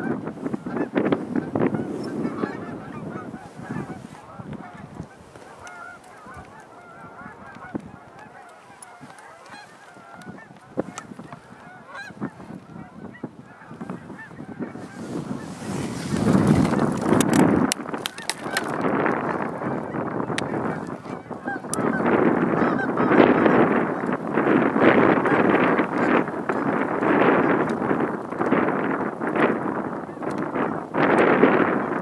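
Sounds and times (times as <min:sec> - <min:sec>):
geese honking in flight: 0:00.0 - 0:32.0.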